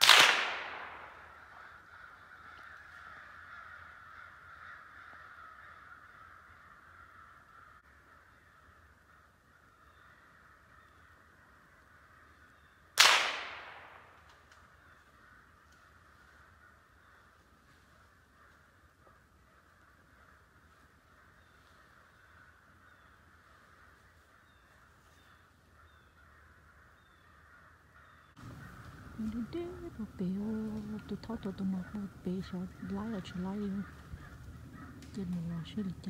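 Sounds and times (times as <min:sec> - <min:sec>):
gunshot with echo: 0:00.0 - 0:01.3, 0:13.0 - 0:14.3.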